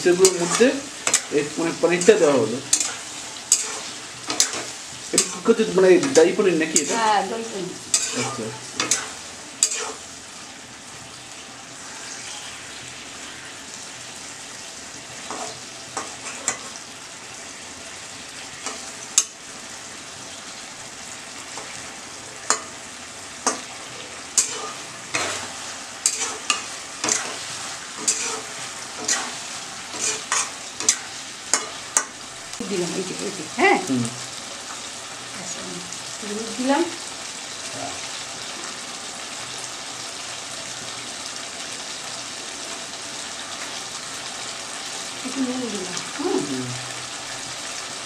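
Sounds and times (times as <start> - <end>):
food sizzling in oil: 0.0 - 48.0
metal spatula scraping a pan: 0.1 - 7.2, 7.9 - 10.0, 15.2 - 16.8, 23.4 - 32.1.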